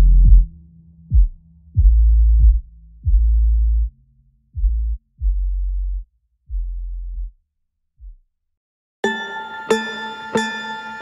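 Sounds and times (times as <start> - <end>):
deep synth bass notes: 0.0 - 7.4.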